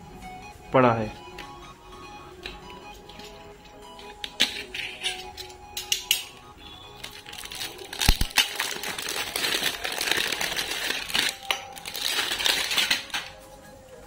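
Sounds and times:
metal cans clinking together: 2.4 - 6.4, 7.0 - 13.4
plastic shrink-wrap crinkling: 7.0 - 13.4.

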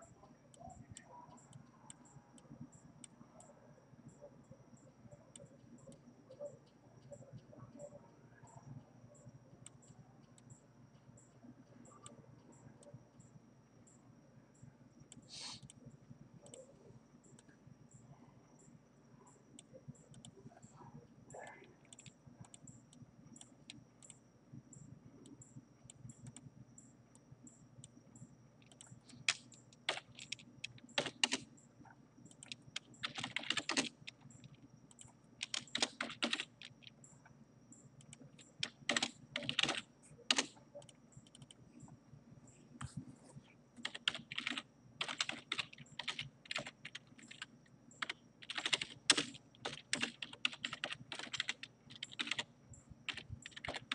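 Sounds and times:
computer keyboard typing: 21.3 - 22.7, 28.6 - 31.5, 32.3 - 37.0, 38.0 - 41.6, 43.8 - 53.9.

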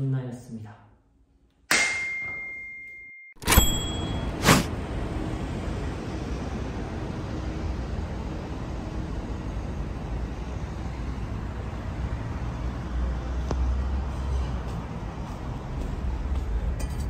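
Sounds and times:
road traffic noise: 3.4 - 17.0
vehicle passing rumble: 11.0 - 16.8.

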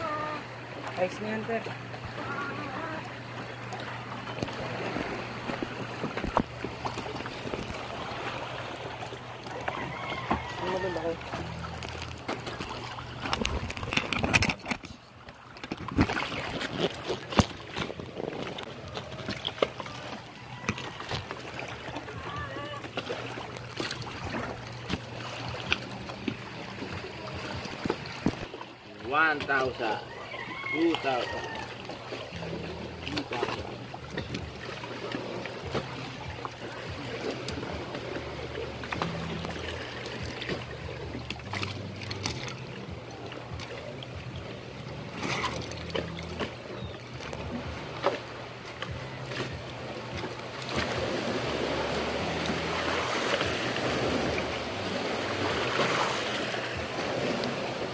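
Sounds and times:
low steady hum: 0.0 - 57.9
knocks and taps in boat: 4.3 - 7.9, 9.4 - 28.5, 33.0 - 51.2
fish slapping on wet boat floor: 39.0 - 42.6.

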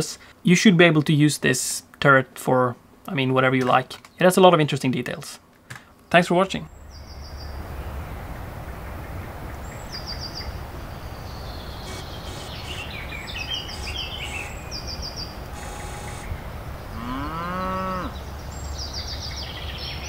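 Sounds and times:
small birds chirping: 6.1 - 20.0
low rumble: 6.7 - 17.1
farm animal calling: 11.6 - 18.4.

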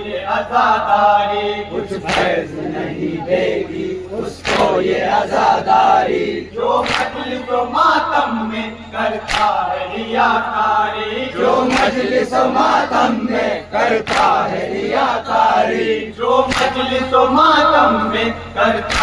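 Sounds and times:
men chanting in unison: 0.0 - 19.0.

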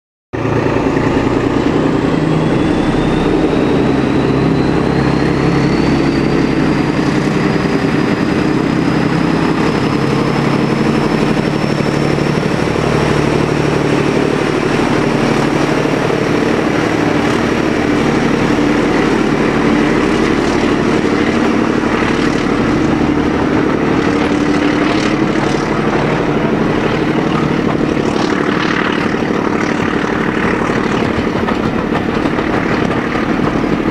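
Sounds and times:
high whine: 0.4 - 33.9
locomotive diesel engine: 0.4 - 33.9
wheels clacking over rail joints: 7.6 - 33.9.

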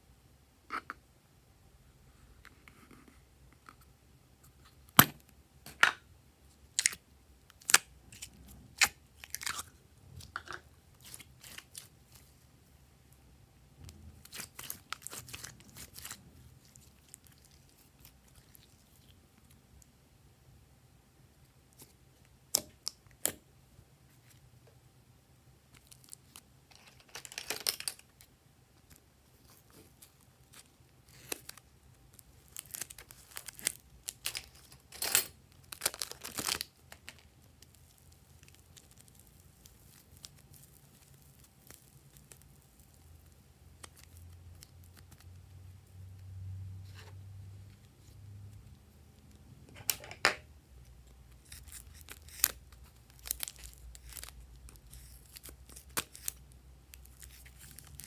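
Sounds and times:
crackly tearing of clay: 6.7 - 12.3, 13.9 - 19.5, 28.9 - 34.9, 35.6 - 45.4, 50.9 - 58.0.

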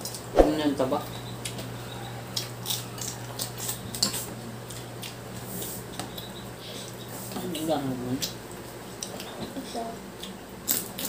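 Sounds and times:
steady low hum: 0.2 - 7.1.

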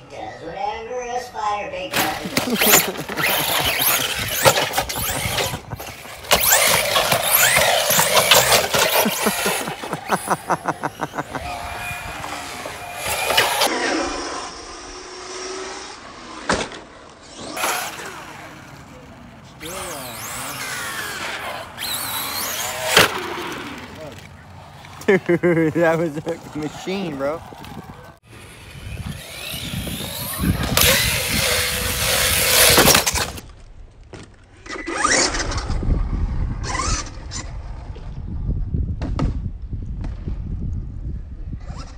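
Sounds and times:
tyres running on concrete: 1.9 - 13.7, 17.4 - 33.4
toy car electric motor whining: 2.0 - 24.3, 28.3 - 33.4, 34.6 - 37.6
wind rumble on microphone: 27.4 - 33.9, 35.2 - 41.9.

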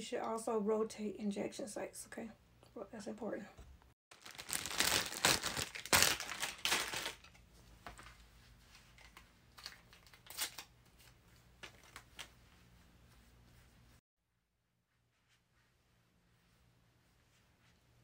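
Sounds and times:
plastic bag crinkling: 4.1 - 7.4.

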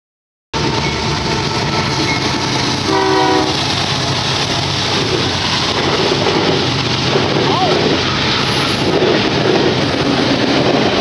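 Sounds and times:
freight train rumbling past: 0.6 - 11.0
train horn blast: 2.8 - 3.7.

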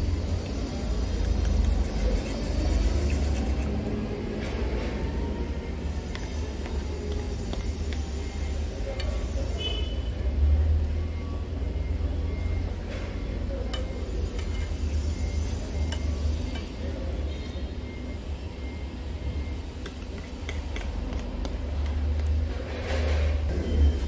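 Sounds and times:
fork scraping plastic bowl: 1.6 - 3.8.

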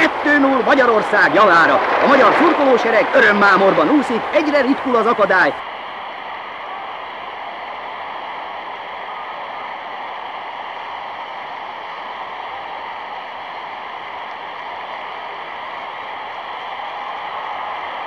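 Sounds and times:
muffled stadium crowd: 0.0 - 18.0.

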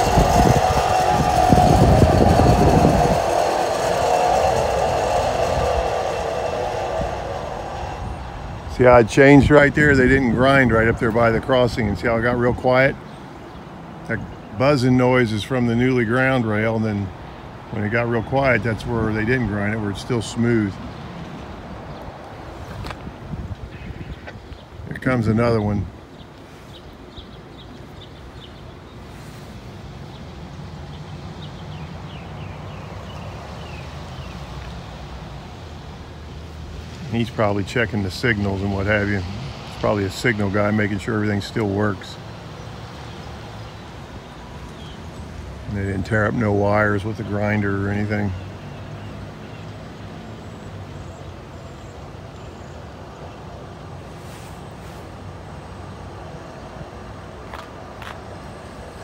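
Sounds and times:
truck humming on track: 0.0 - 14.8, 27.1 - 59.0
birds chirping: 23.6 - 34.8, 37.0 - 53.6.

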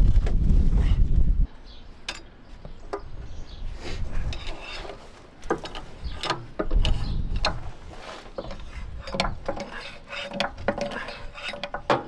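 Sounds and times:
metal and wood clicks and knocks: 4.4 - 7.7, 8.3 - 12.0.

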